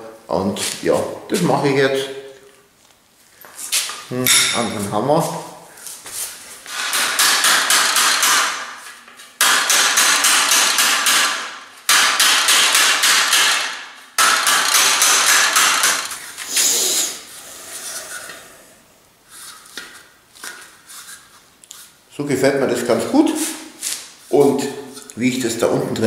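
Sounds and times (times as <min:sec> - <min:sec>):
hammer beating sheet metal: 0:06.7 - 0:16.1.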